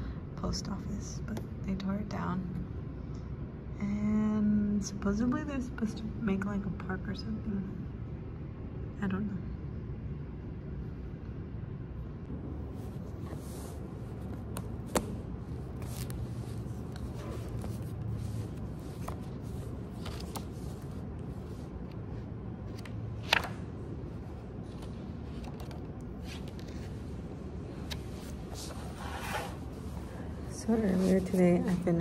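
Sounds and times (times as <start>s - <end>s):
low steady hum: 0.0s - 32.0s
paper pages rustling: 12.7s - 23.6s, 24.4s - 32.0s.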